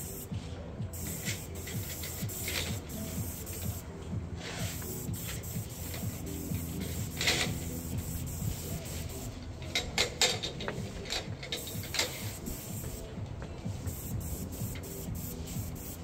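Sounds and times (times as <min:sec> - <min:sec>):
spray hissing: 0:00.9 - 0:03.8, 0:04.4 - 0:09.4, 0:11.6 - 0:13.1, 0:13.7 - 0:16.0.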